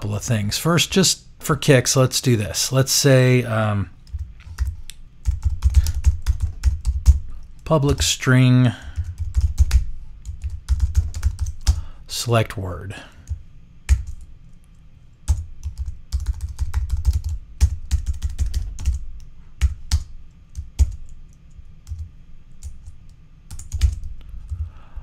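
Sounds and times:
typing on computer keyboard: 4.0 - 7.2, 8.9 - 11.8, 13.3 - 14.3, 15.3 - 24.7.

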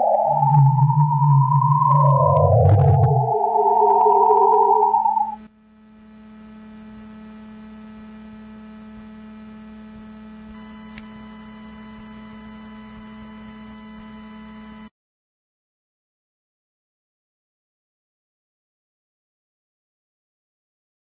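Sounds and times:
electrical mains hum: 0.0 - 14.8
faint click: 10.9 - 11.1.

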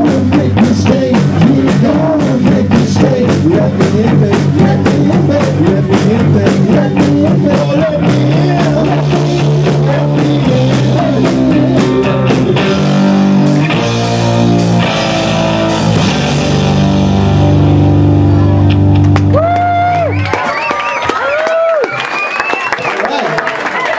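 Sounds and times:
drum kit beat: 0.0 - 20.7
electric guitars: 0.0 - 20.7.

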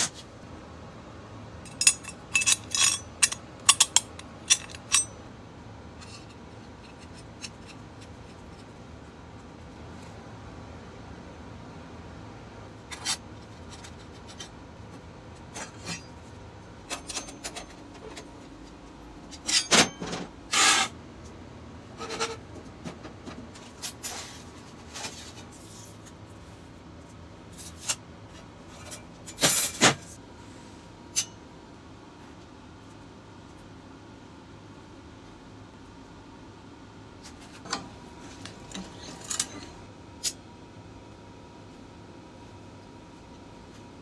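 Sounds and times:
metal parts clanking and scraping: 1.7 - 5.2, 6.0 - 8.7, 15.5 - 16.2, 16.8 - 18.5, 19.2 - 20.9, 27.5 - 30.2, 38.6 - 40.4.

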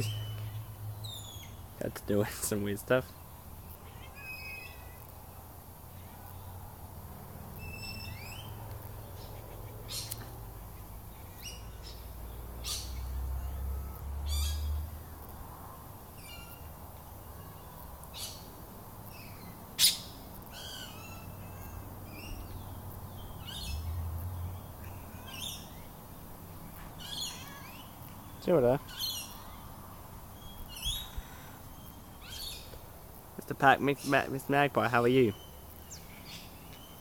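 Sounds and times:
bird chirps and squawks: 27.0 - 27.9.

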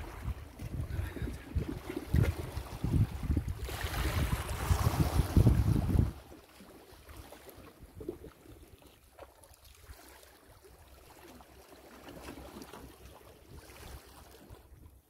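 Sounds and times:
light wind: 0.0 - 10.6
calm sea water: 0.0 - 15.0.

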